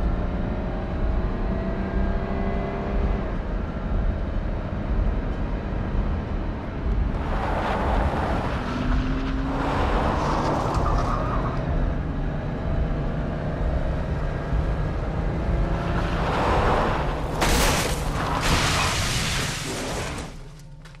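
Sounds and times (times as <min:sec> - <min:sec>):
car engine and road rumble: 0:00.0 - 0:21.0
car crashing: 0:16.2 - 0:20.6.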